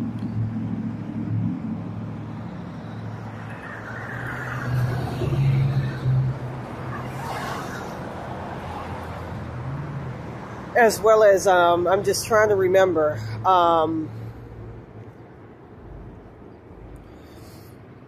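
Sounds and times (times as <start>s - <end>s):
low engine hum: 0.0s - 4.0s
traffic noise: 0.0s - 18.0s.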